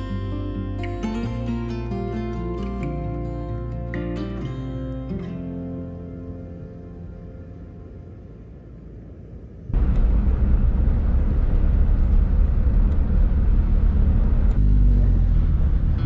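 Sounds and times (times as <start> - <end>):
car driving rumble: 0.0 - 16.0.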